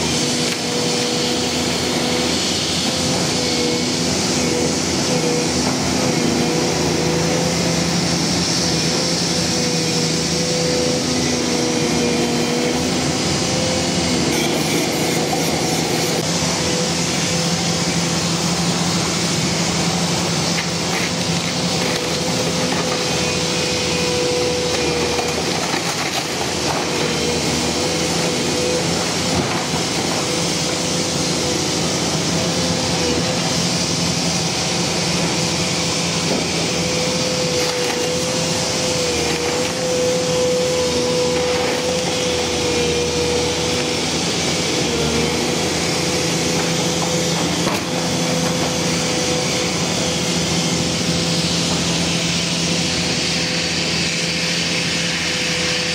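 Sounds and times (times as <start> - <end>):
excavator diesel engine running: 0.0 - 55.9.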